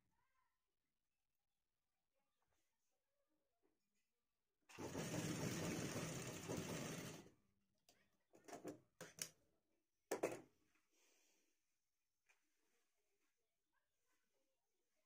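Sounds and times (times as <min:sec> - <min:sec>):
sewing machine stitching: 0:04.7 - 0:07.3.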